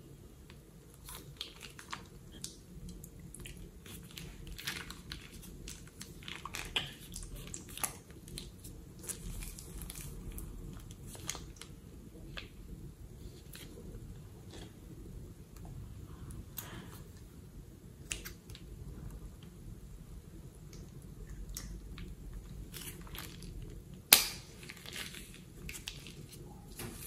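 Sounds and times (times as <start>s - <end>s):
plastic piping bag crinkling: 0.9s - 12.7s, 21.6s - 27.0s.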